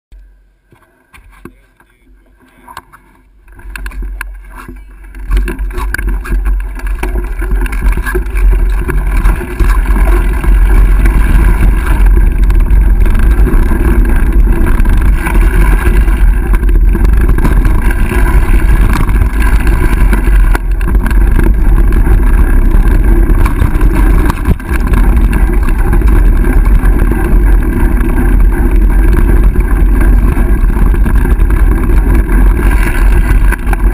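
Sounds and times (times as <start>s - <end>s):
tyres rumbling and rattling on trail: 0.2s - 33.9s
wind buffeting microphone: 5.1s - 33.9s.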